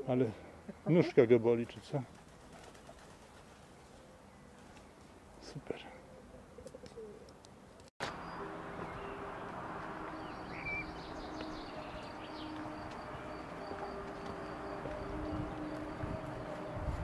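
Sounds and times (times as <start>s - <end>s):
small birds chirping: 0.4s - 17.0s.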